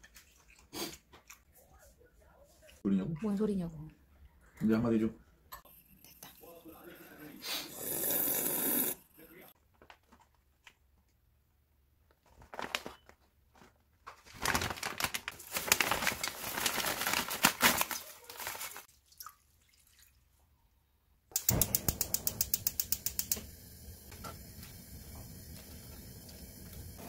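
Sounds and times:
plastic package rustling: 12.2s - 18.9s
dried greens crackling: 14.3s - 18.9s
water pouring: 17.8s - 20.4s.

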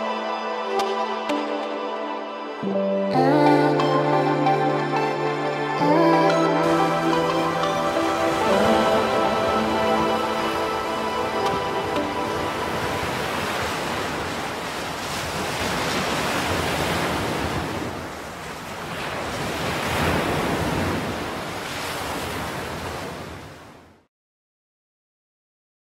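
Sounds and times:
ocean surf washing: 0.0s - 24.0s.

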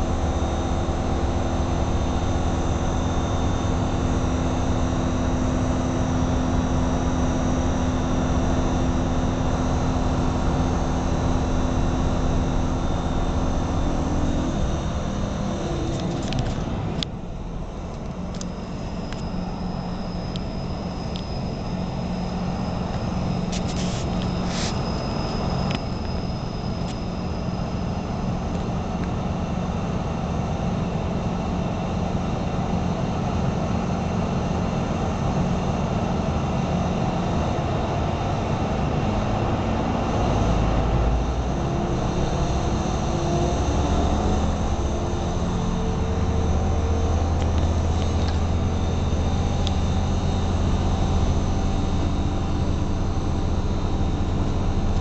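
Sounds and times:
low engine drone: 0.0s - 55.0s
thin high squeal: 22.4s - 27.5s.

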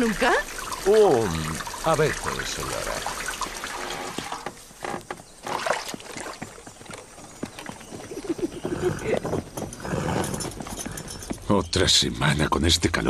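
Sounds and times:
knocks and clatter around wooden cart: 2.0s - 11.8s
horse hoofbeats: 3.4s - 11.8s.

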